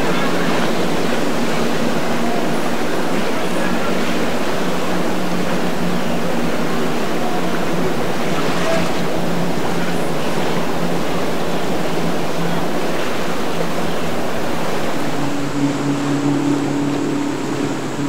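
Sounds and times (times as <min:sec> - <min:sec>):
boat engine drone: 0:00.0 - 0:18.0
waves rushing: 0:00.0 - 0:18.0
wind: 0:00.0 - 0:18.0.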